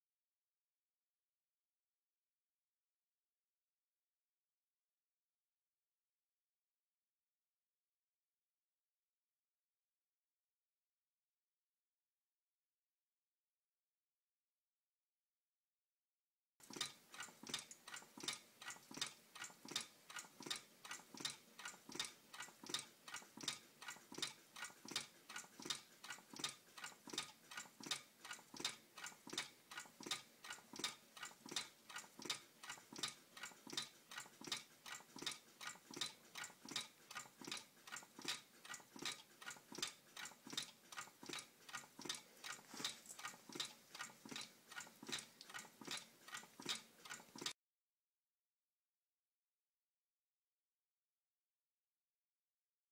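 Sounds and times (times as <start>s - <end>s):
small engine ticking: 16.6s - 47.6s.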